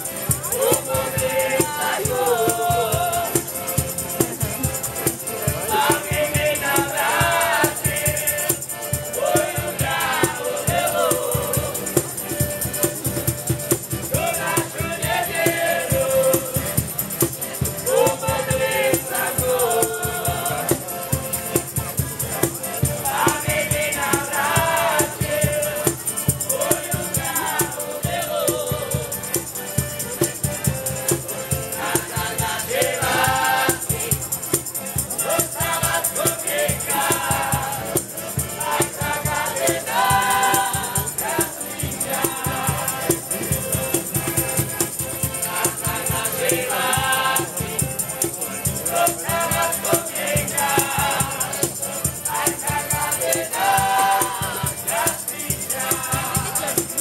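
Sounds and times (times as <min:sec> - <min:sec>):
voices singing together: 0:00.0 - 0:13.0, 0:13.7 - 0:57.0
button accordion: 0:00.0 - 0:57.0
tambourine shaking: 0:00.0 - 0:57.0.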